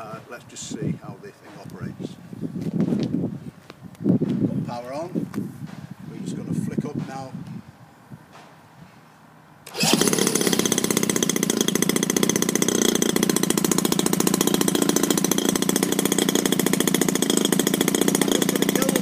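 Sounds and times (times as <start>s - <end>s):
model aircraft engine running: 9.7s - 19.0s.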